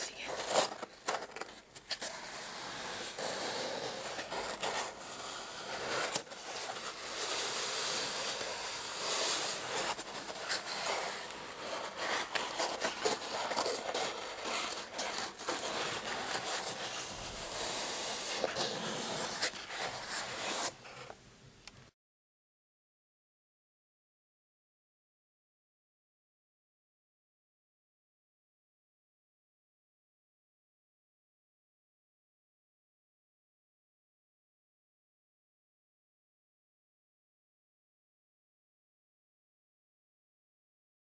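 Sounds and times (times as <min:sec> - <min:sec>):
fingernails scratching cardboard: 0:00.2 - 0:21.1.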